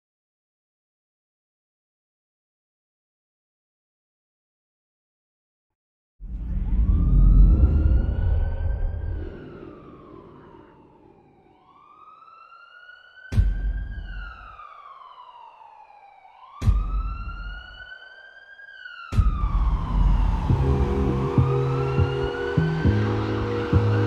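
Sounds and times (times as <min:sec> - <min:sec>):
police siren wailing: 0:06.5 - 0:24.0
music with low notes: 0:19.2 - 0:24.0.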